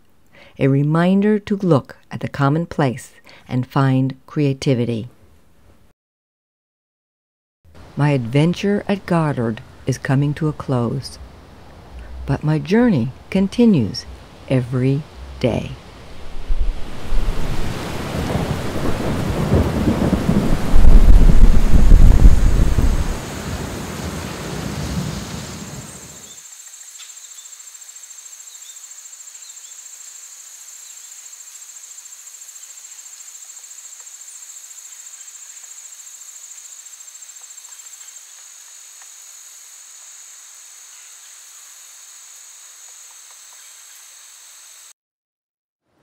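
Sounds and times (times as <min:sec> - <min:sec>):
crickets trilling: 0:13.2 - 0:44.9
loud rain-like rumbling: 0:15.1 - 0:26.3.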